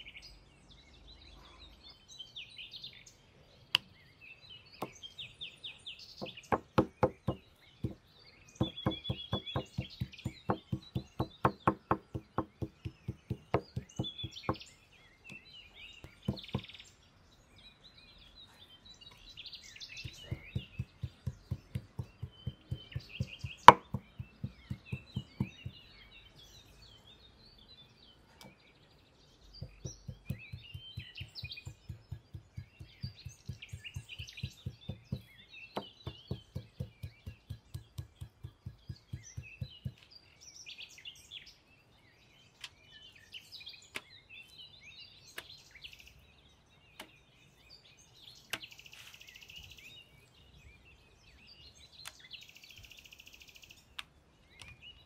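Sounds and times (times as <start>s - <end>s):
birds chirping: 0.0s - 55.0s
cleaver chopping on wooden board: 4.8s - 5.0s, 6.2s - 8.0s, 8.6s - 14.6s, 15.3s - 16.7s, 20.0s - 25.8s, 29.6s - 40.1s.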